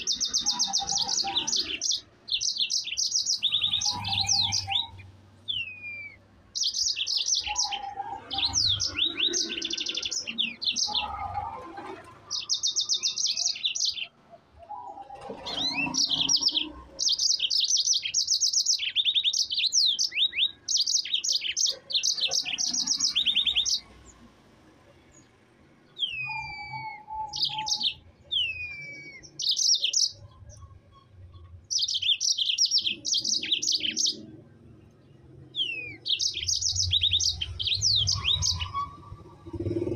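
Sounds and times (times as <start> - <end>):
canary singing fast trills: 0.0 - 24.3, 24.9 - 39.9
down-slurred bird whistles: 5.5 - 6.2, 26.0 - 29.9.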